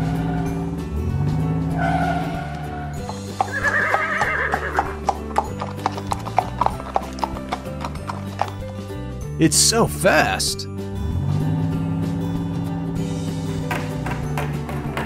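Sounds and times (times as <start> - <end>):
background music: 0.0 - 15.0
horse neighing: 1.8 - 8.6
clip-clop hoofbeats: 3.0 - 9.0, 13.4 - 15.0.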